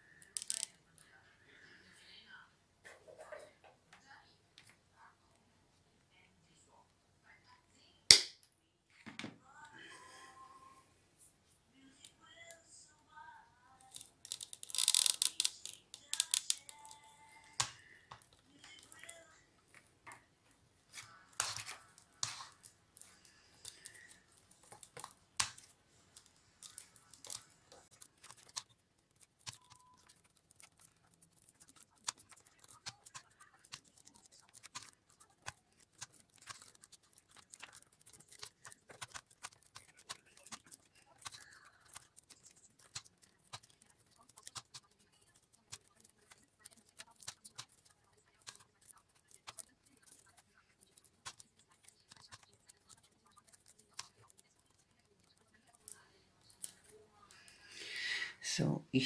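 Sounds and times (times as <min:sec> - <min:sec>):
newspaper tubes rustling and crackling: 0:20.8 - 0:56.9.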